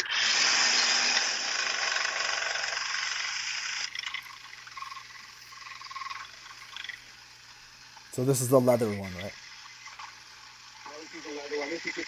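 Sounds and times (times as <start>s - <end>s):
belt sander running: 0.0s - 4.8s.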